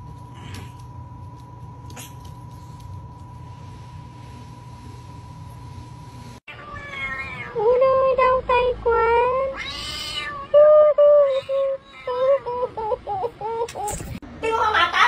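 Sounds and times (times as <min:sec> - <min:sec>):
cat meowing: 0:06.5 - 0:07.6, 0:09.5 - 0:10.6.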